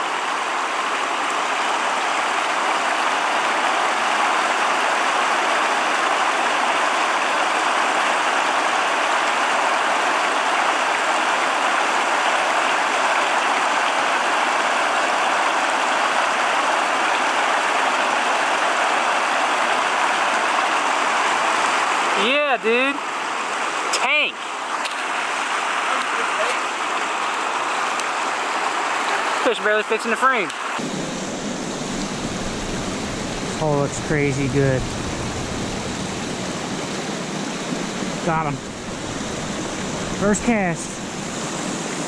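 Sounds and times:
creek water rushing over rocks: 0.0 - 42.0.

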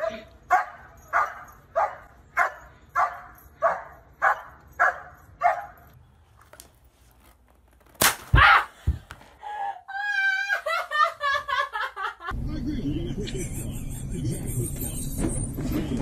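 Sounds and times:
dog barking: 0.0 - 5.9
person falling onto floor: 8.0 - 9.4.

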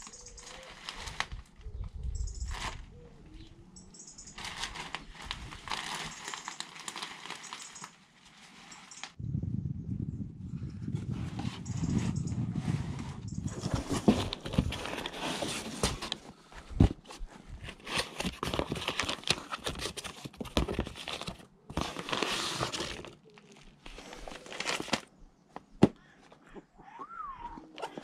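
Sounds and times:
cardboard and plastic rustling: 0.0 - 1.8, 2.4 - 3.0, 4.3 - 9.2, 13.4 - 25.1.

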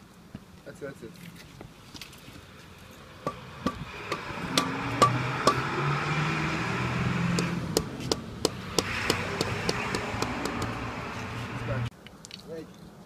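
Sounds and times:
hand tool tapping on concrete: 3.2 - 5.6, 7.4 - 10.8.

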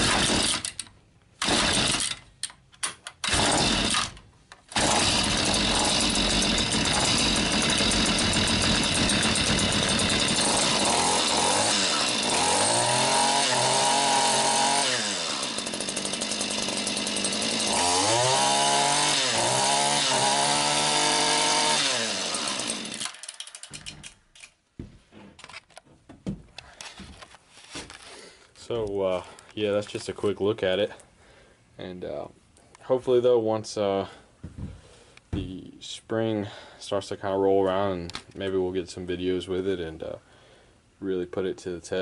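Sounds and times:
string trimmer engine revving: 0.0 - 0.8, 1.4 - 2.2, 3.2 - 23.6.

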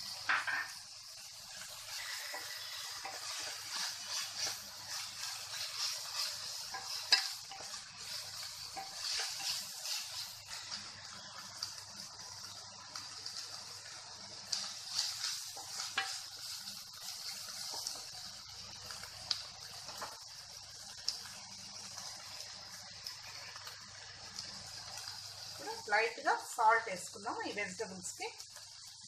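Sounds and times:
vegetables sizzling in oil: 0.0 - 29.0
wooden spatula scraping pan: 1.8 - 10.7, 14.8 - 18.0.

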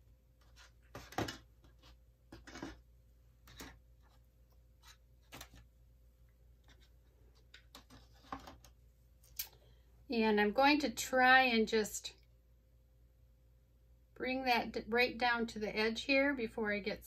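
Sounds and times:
plastic cups knocking and scraping: 0.5 - 4.2, 6.6 - 8.8.

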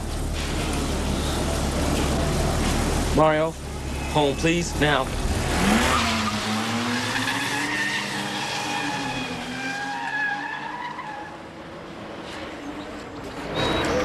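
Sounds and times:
car engine revving: 0.0 - 10.0.

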